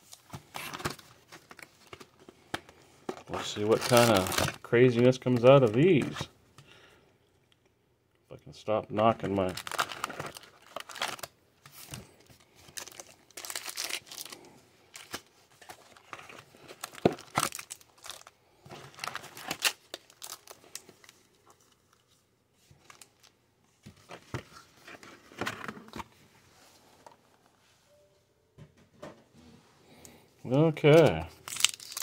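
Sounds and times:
foil packs crinkling: 3.1 - 6.2, 9.0 - 21.3, 30.8 - 32.0.

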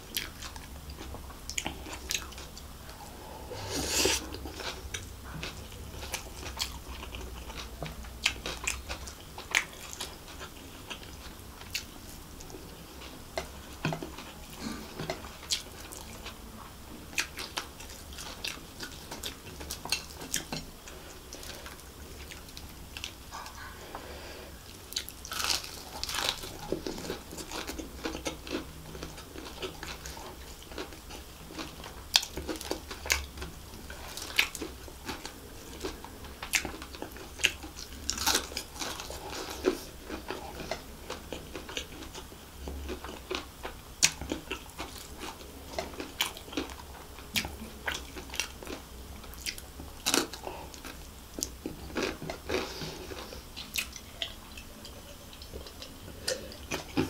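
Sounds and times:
close chewing of crispy food: 0.0 - 57.0.

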